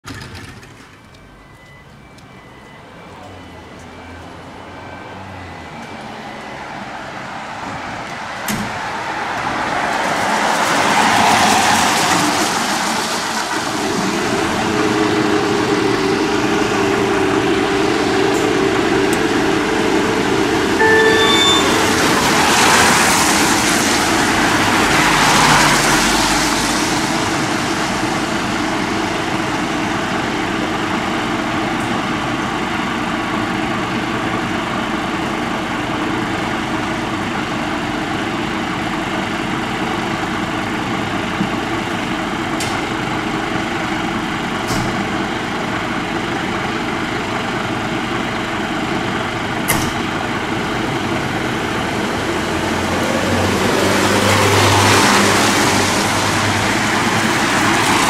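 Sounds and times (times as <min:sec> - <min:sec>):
rising beeps: 0:01.3 - 0:07.1, 0:20.0 - 0:25.1
diesel engine idling: 0:13.6 - 0:57.9.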